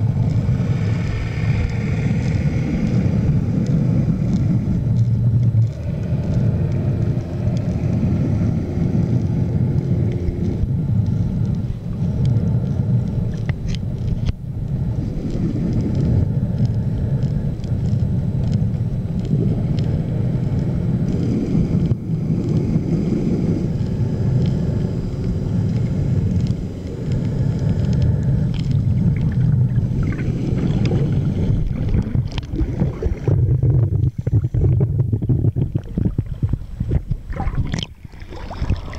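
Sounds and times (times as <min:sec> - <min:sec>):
underwater low rumble: 0:00.0 - 0:38.9
faint sharp clicks: 0:09.0 - 0:22.7, 0:23.7 - 0:33.3.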